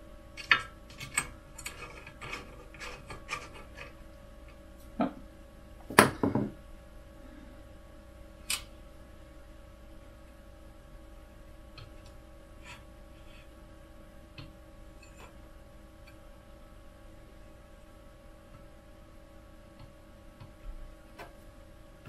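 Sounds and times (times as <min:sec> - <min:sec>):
knock on printer bed plate: 0:05.9 - 0:06.6.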